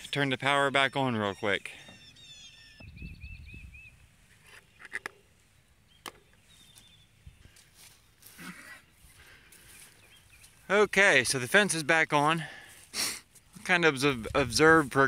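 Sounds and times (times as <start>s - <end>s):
footsteps on grass: 6.4s - 15.0s.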